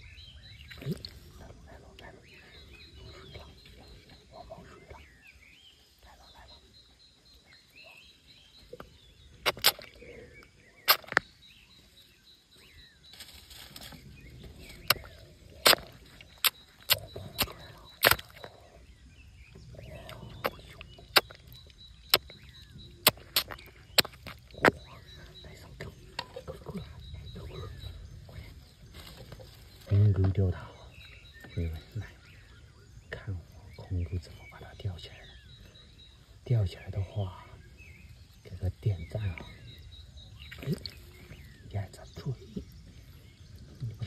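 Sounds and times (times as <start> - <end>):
wet clicks and slaps: 9.4 - 9.9, 10.9 - 11.3, 14.9 - 18.5, 23.0 - 24.8.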